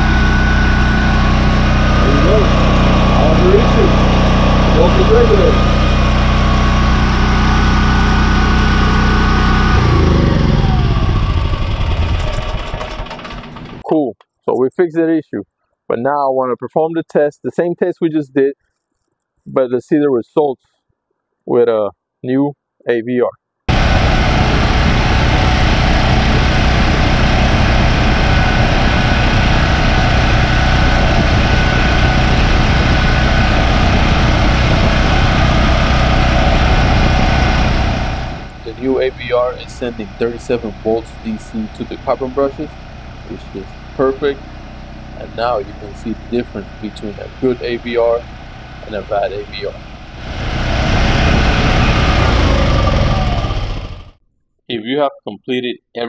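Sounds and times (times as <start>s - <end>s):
generator engine running: 0.0s - 14.0s, 23.7s - 54.2s.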